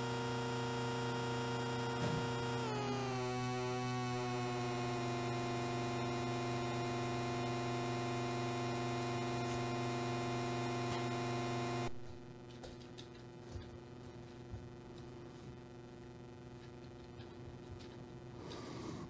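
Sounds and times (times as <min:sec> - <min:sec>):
buzzy synthesizer drone: 0:00.0 - 0:12.0.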